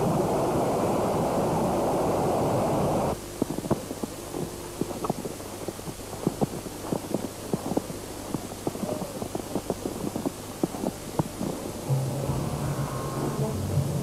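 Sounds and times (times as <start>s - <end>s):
footsteps crunching on snow: 3.2s - 13.5s
music: 11.8s - 14.0s.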